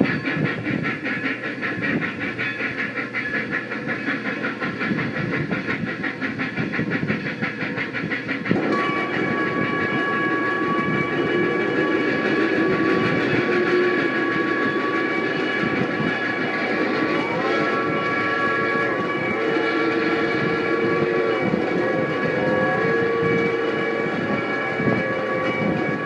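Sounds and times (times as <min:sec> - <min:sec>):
toy train clattering on track: 0:00.0 - 0:26.0
steady high tones: 0:07.1 - 0:26.0.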